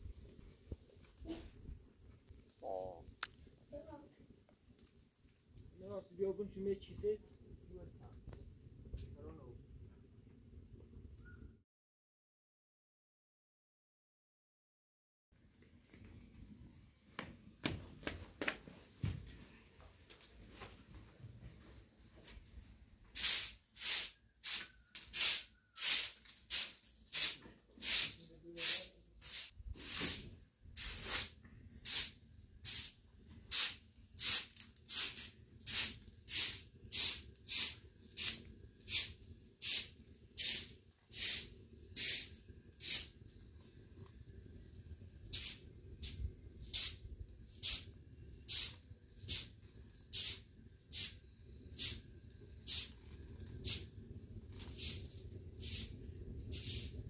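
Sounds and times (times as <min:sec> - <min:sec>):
broom sweeping a floor: 0:23.1 - 0:43.1, 0:45.3 - 0:47.9, 0:48.5 - 0:49.5, 0:54.6 - 0:55.9, 0:56.5 - 0:57.0.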